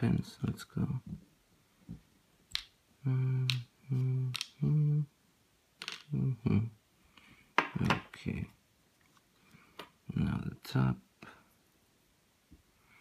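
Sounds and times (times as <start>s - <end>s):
man humming notes: 3.0s - 5.2s, 6.1s - 6.8s.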